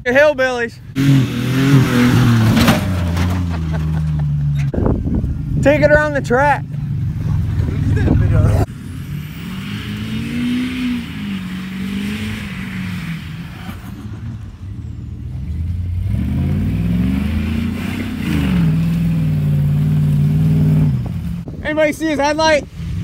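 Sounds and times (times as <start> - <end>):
pickup truck engine revving: 0.9 - 21.5
tyres spinning throwing dirt: 1.8 - 4.7.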